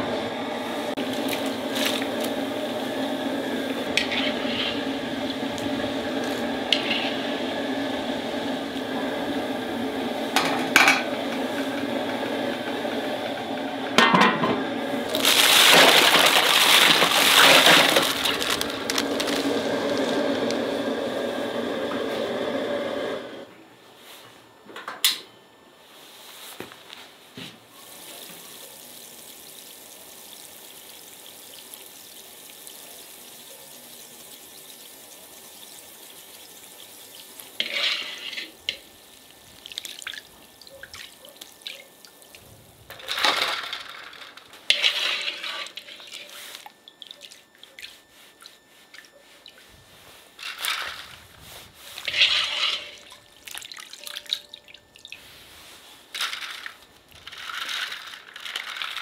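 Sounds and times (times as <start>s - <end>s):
water pouring and splashing: 1.0s - 2.4s, 15.1s - 20.6s, 27.8s - 59.0s
faint steady hiss: 25.3s - 59.0s
water dripping: 38.8s - 42.4s, 46.8s - 49.6s, 53.0s - 55.2s.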